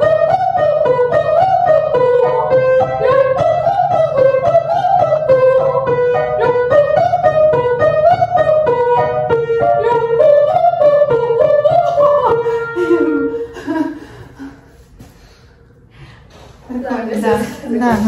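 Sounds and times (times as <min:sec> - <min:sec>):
instrumental accompaniment: 0:00.0 - 0:13.8
woman laughing: 0:12.8 - 0:14.7.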